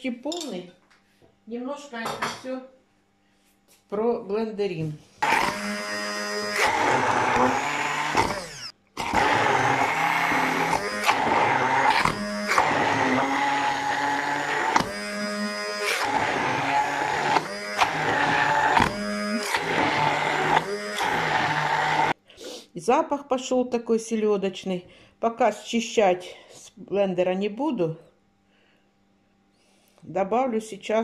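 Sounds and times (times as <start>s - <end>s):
stick blender chopping food: 5.2s - 22.2s.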